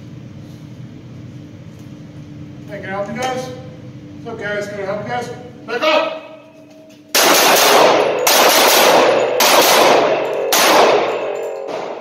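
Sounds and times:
pistol shots with echo: 0:07.2 - 0:12.0.

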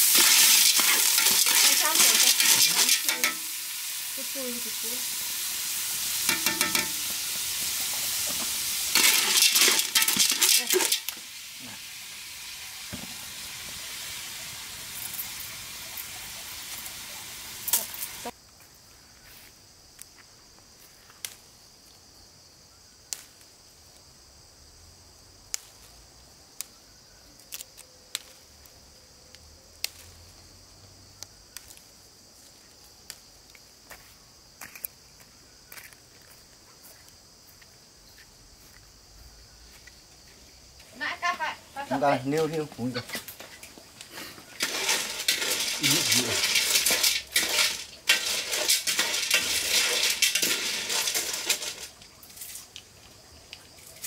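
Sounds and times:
food sizzling in a pan: 0:00.0 - 0:18.4, 0:40.9 - 0:52.8.

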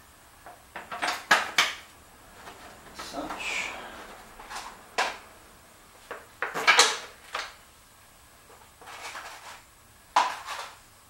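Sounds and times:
parts and tools clattering: 0:00.8 - 0:01.8, 0:06.0 - 0:07.6, 0:08.5 - 0:09.6.

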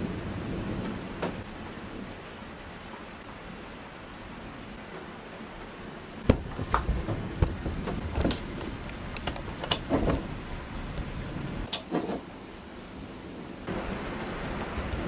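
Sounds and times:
thunder cracking and rumbling: 0:00.0 - 0:02.8, 0:06.2 - 0:11.7, 0:13.7 - 0:15.0
steady rain: 0:00.0 - 0:15.0.

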